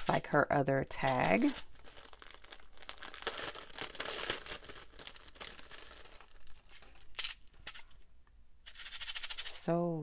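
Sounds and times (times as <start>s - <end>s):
cellophane bag crinkling: 0.9s - 8.0s.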